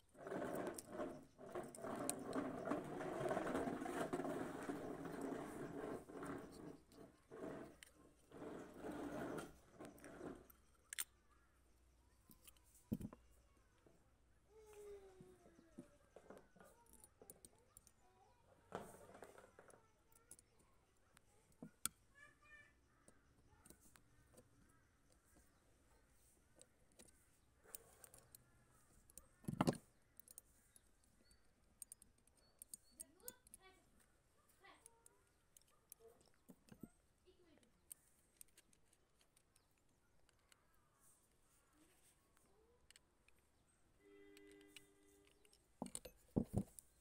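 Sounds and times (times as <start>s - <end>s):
metal parts rustling and scraping: 44.3s - 47.0s
screwdriver clicking on metal: 44.4s - 47.0s.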